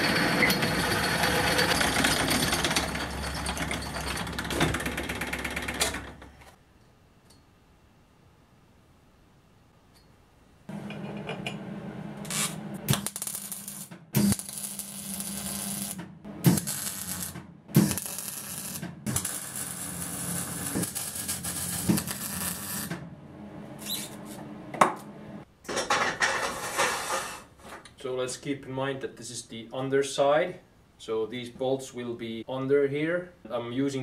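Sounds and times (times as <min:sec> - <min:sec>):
arc welding crackling hiss: 0:12.3 - 0:22.9.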